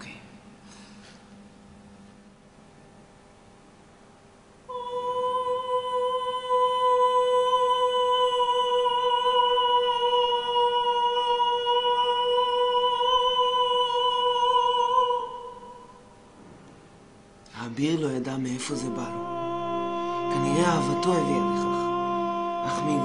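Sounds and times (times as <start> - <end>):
woman singing long held note: 4.7 - 16.2, 18.6 - 23.0.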